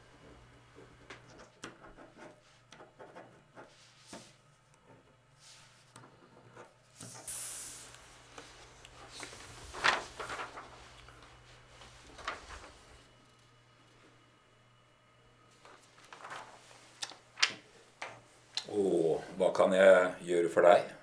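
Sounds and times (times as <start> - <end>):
faint low room hum: 0.0 - 21.0
paper rustling: 7.9 - 13.1, 15.5 - 18.2.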